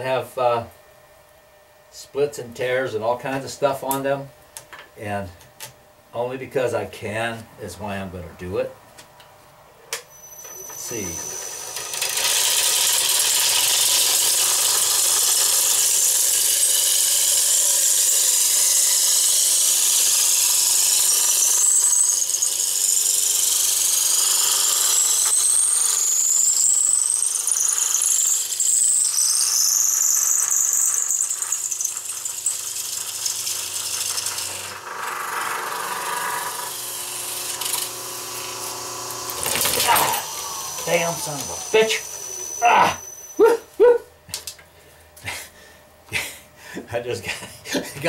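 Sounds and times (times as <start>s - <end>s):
wood shaving hiss with squeals: 10.0s - 43.7s.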